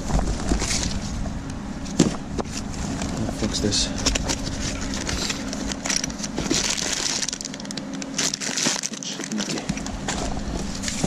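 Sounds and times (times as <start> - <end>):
plastic bag crinkling: 4.1 - 11.0.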